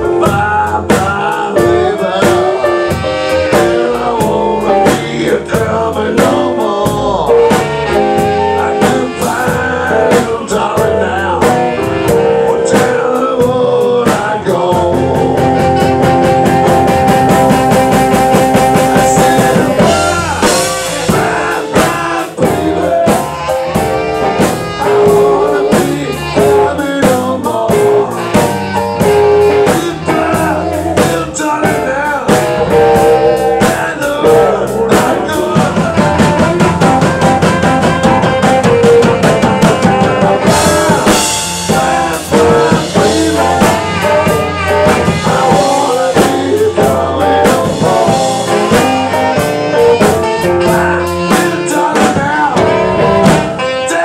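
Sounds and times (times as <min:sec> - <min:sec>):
live blues band playing: 0:00.0 - 0:54.0.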